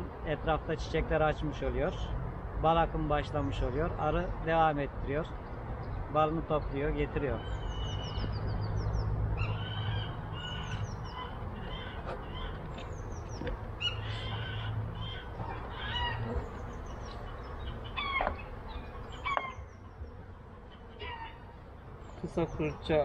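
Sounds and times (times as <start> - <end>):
lower bird calls: 7.2 - 22.9.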